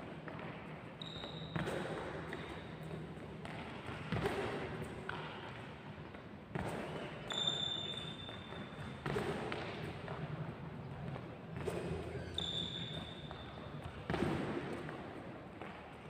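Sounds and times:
shoe squeak: 0:01.0 - 0:02.0, 0:06.9 - 0:09.1, 0:11.7 - 0:13.9.

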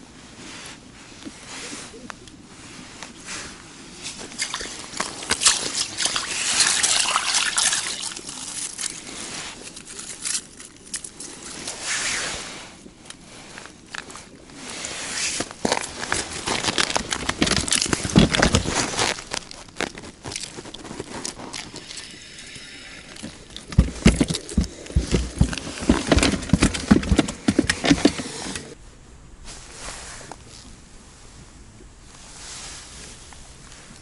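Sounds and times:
clothing rustling on microphone: 0:00.0 - 0:28.8, 0:29.4 - 0:34.0.

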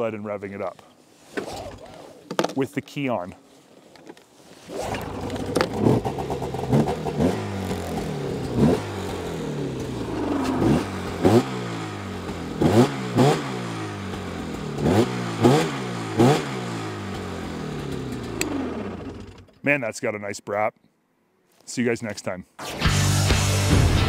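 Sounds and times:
snowmobile engine starting: 0:04.6 - 0:19.6
snowmobile engine idling and revving: 0:04.9 - 0:19.5.

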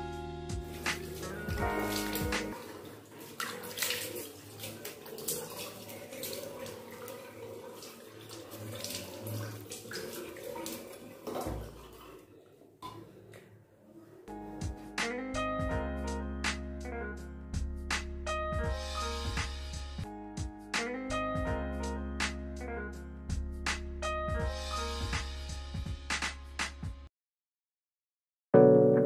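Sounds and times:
background guitar music: 0:00.0 - 0:02.8, 0:14.3 - 0:25.5, 0:28.6 - 0:29.0
face rinsing splashes: 0:00.6 - 0:12.3
tap water running into a basin: 0:00.7 - 0:13.0.

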